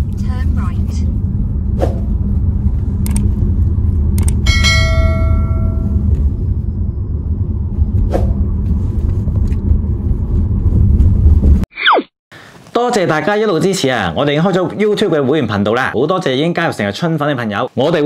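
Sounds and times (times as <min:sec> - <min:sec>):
car road and engine rumble: 0:00.0 - 0:11.7
bell-like chime: 0:04.5 - 0:06.0.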